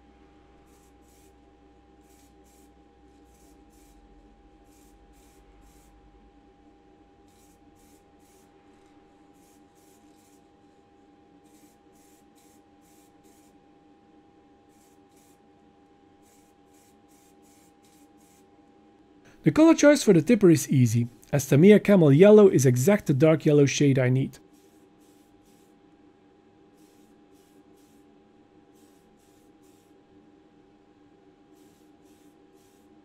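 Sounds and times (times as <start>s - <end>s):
steady low hum: 0.0s - 33.0s
spray can hissing: 0.7s - 1.3s, 2.0s - 2.7s, 4.6s - 5.9s, 7.3s - 8.5s, 9.4s - 10.4s, 11.4s - 13.6s, 14.7s - 15.4s, 16.2s - 18.4s, 24.5s - 25.7s, 26.8s - 28.0s, 28.7s - 30.0s, 31.5s - 32.9s.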